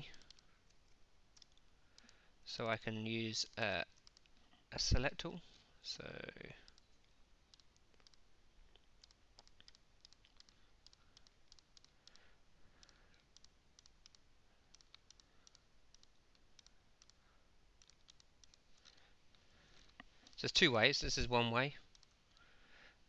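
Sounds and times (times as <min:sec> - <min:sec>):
computer mouse clicks: 0:00.0 - 0:02.2, 0:03.9 - 0:04.4, 0:06.6 - 0:08.2, 0:08.8 - 0:12.2, 0:12.8 - 0:17.2, 0:17.8 - 0:19.0, 0:21.9 - 0:22.5
low room hum: 0:00.0 - 0:23.0.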